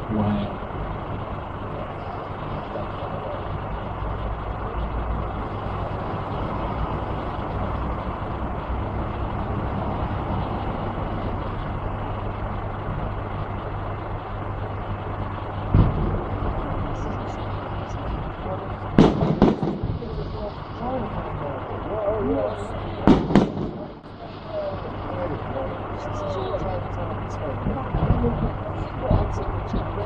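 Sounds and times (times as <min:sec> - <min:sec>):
steady low rumble: 0:00.0 - 0:30.0.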